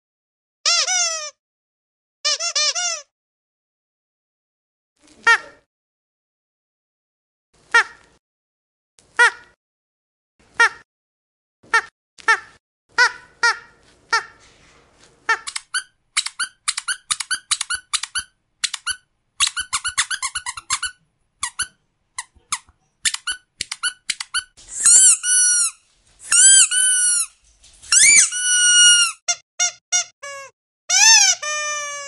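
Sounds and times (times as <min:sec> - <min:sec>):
squeaky dog toy squeaking: 0:00.6 - 0:01.4, 0:02.3 - 0:03.1, 0:11.7 - 0:14.4, 0:15.3 - 0:32.0.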